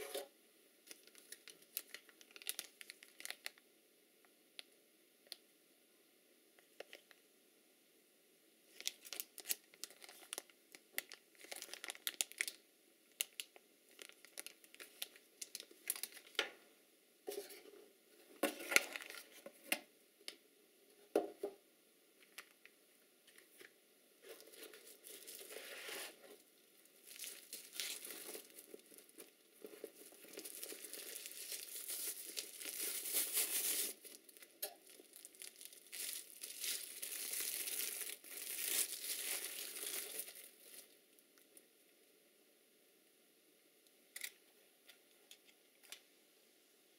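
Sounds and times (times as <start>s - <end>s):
plastic packaging crinkling: 0.0s - 3.6s, 8.7s - 16.4s, 18.4s - 19.5s, 23.3s - 41.0s.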